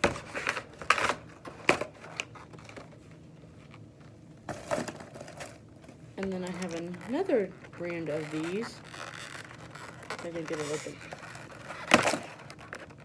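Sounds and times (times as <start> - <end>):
box rustling and clattering: 4.4 - 13.0.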